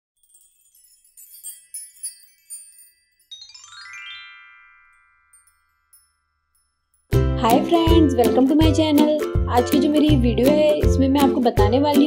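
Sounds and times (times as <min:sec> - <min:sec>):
rising run of bell notes: 0:00.2 - 0:07.1
sparkling chime tinkles: 0:00.2 - 0:07.2.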